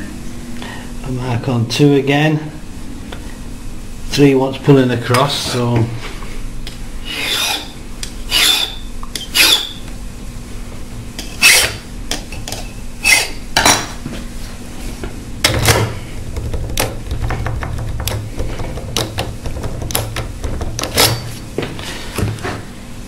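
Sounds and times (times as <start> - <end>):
hand file rasping on metal: 7.0 - 8.8.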